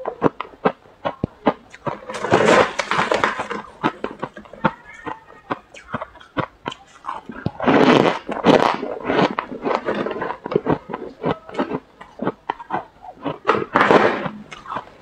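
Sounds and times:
frost crunching being chewed: 0:00.0 - 0:15.0.

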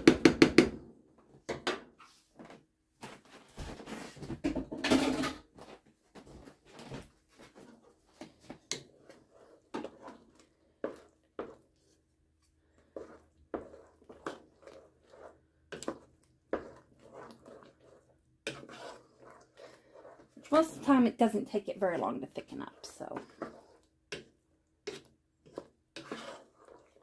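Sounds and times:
wooden spoon scraping a pot: 0:06.2 - 0:27.0
thick pie filling simmering: 0:06.5 - 0:27.0.

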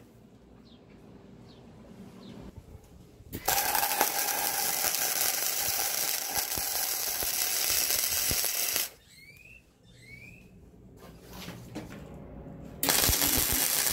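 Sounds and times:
welding arc crackling: 0:03.4 - 0:09.0, 0:12.8 - 0:13.9.

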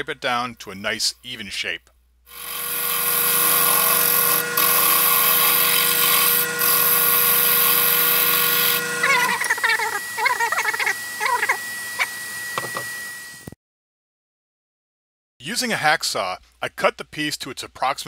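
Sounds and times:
wood lathe whine: 0:02.3 - 0:13.5.

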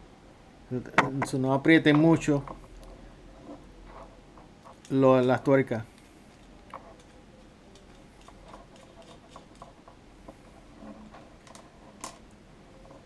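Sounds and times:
small screws and nuts clicking: 0:02.0 - 0:05.0, 0:06.0 - 0:13.0.

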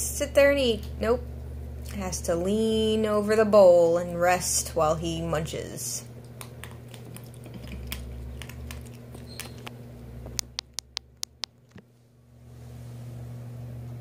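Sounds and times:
steady low hum: 0:00.0 - 0:14.0
ferret crunching dry kibble: 0:06.2 - 0:11.7.

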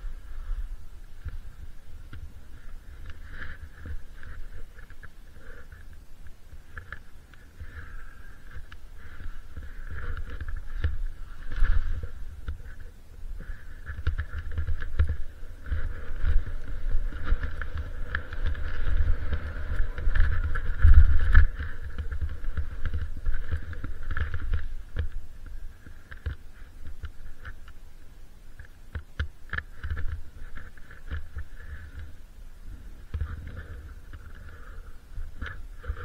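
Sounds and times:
skis scraping over snow: 0:00.0 - 0:27.6
wind buffeting microphone: 0:00.0 - 0:27.6.

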